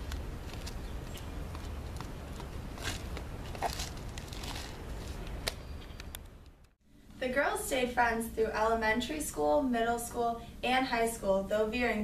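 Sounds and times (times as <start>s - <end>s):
footsteps on concrete steps: 0.0s - 5.6s.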